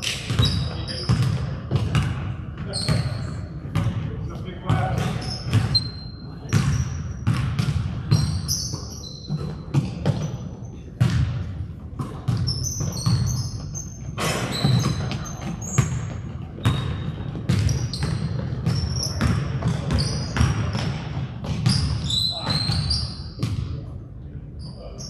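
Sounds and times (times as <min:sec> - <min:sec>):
sneaker squeaks on court: 0:00.1 - 0:04.0, 0:04.7 - 0:11.4, 0:12.0 - 0:23.7
basketball bouncing on gym floor: 0:00.2 - 0:23.8.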